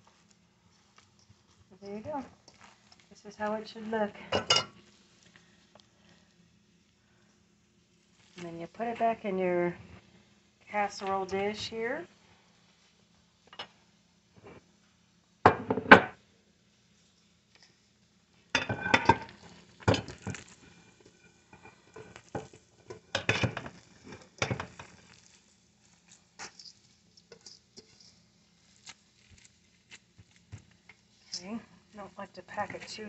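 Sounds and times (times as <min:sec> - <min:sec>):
shuffling and small knocks: 0:00.0 - 0:04.0, 0:19.1 - 0:31.7
metal bowl clattering on dish: 0:04.4 - 0:04.7, 0:18.6 - 0:19.3.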